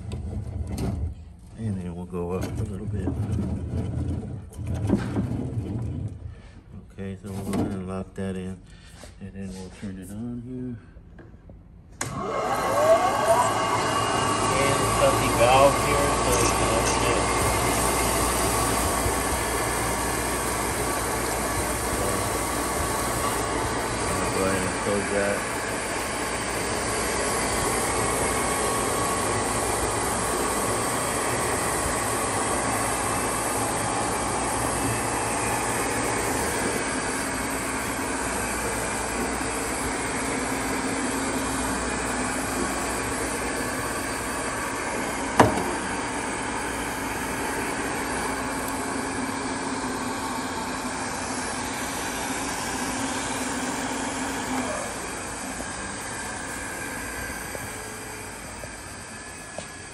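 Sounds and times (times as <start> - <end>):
electric motor running: 12.0 - 59.9.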